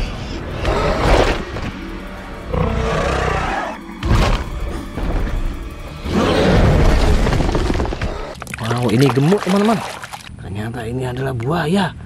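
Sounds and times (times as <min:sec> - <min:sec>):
dramatic film music: 0:00.0 - 0:08.4.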